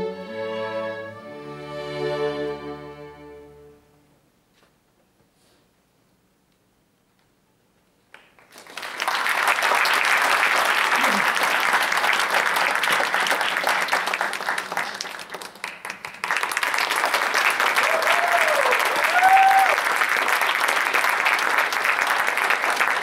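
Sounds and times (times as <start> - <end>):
audience applause: 8.2 - 23.0.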